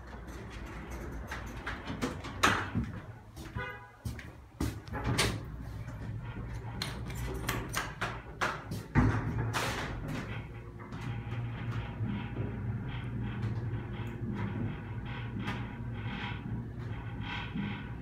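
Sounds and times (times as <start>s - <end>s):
elevator doors sliding closed: 0.0s - 3.4s, 4.6s - 18.0s
low steady hum: 8.9s - 18.0s.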